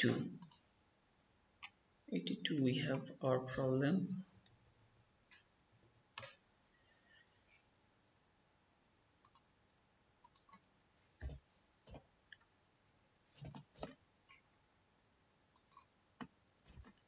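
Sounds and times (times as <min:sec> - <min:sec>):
mouse clicks: 0:00.4 - 0:00.6, 0:09.2 - 0:09.5, 0:10.2 - 0:10.6, 0:15.5 - 0:17.0
computer keyboard clicks: 0:09.2 - 0:09.5, 0:10.2 - 0:10.6.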